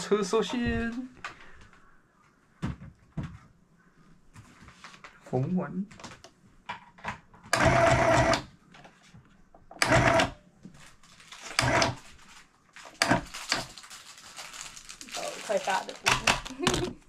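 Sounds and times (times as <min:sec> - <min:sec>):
electric sewing machine stitching: 0:07.6 - 0:08.5, 0:09.8 - 0:10.4, 0:11.6 - 0:12.0.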